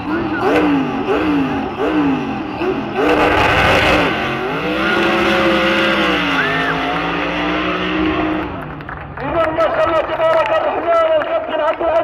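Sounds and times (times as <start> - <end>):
truck engine revving: 0.0 - 9.5.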